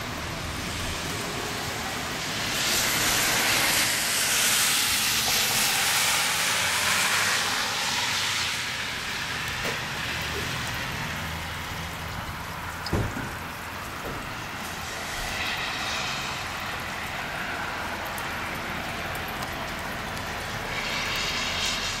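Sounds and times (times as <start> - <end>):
sleet hissing on pavement: 0.7 - 11.1, 14.4 - 18.8, 20.1 - 22.0.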